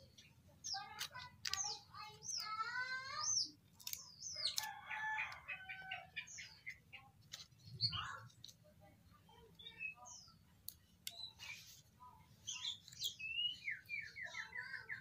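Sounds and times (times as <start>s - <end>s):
birds chirping: 0.0s - 15.0s.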